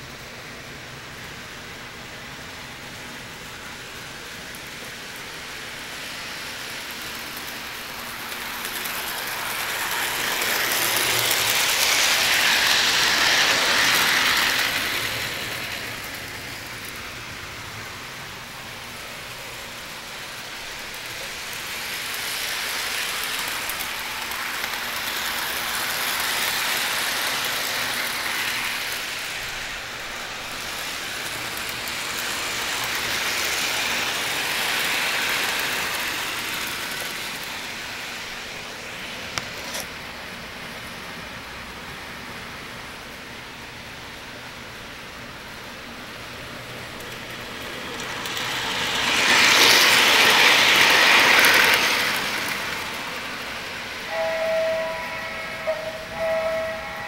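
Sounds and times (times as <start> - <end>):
model train clattering on track: 3.5 - 17.6, 18.2 - 38.5, 46.2 - 56.9.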